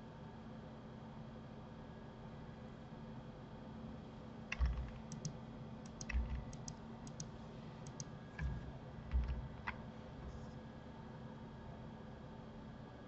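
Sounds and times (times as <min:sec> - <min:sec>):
keyboard key strokes: 0:04.5 - 0:10.5
mouse clicks: 0:04.5 - 0:10.6.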